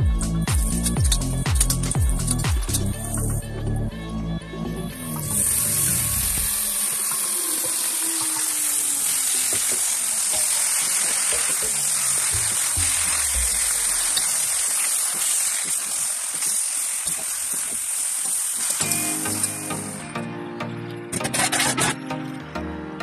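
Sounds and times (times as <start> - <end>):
vegetables sizzling in a wok: 5.2 - 20.1
metal spoon scraping wok: 21.2 - 22.0.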